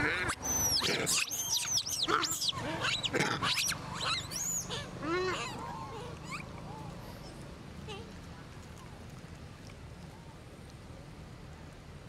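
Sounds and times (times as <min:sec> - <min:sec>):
monkeys squealing: 0:00.0 - 0:06.5.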